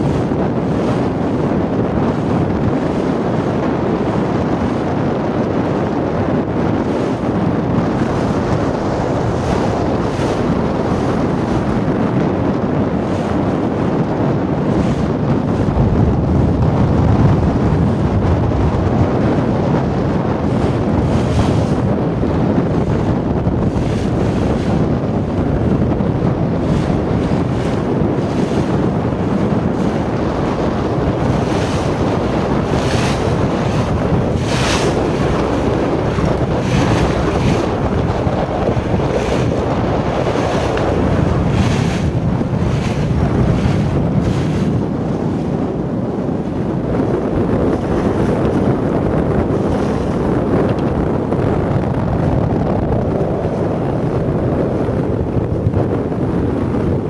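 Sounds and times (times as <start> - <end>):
water rushing past hull: 0.0 - 57.0
wind buffeting microphone: 0.0 - 57.0.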